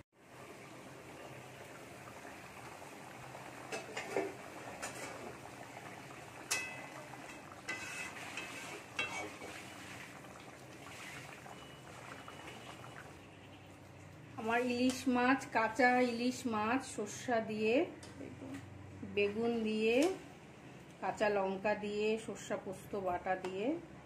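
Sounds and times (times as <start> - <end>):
curry simmering: 0.2 - 17.2
metal spatula scraping a pan: 6.5 - 10.1.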